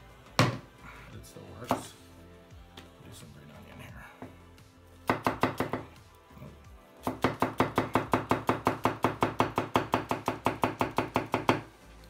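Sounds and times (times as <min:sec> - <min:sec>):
knife chopping on wooden board: 0:05.0 - 0:06.0, 0:07.0 - 0:11.7.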